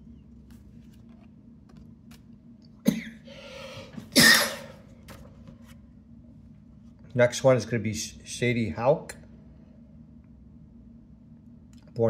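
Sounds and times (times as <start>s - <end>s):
man coughing: 2.8s - 3.3s, 4.0s - 4.8s.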